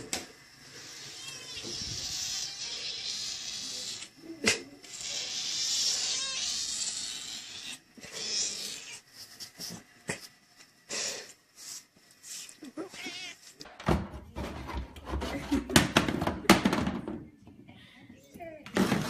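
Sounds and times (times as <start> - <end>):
cat making small sounds: 0.8 - 9.2, 11.7 - 13.6.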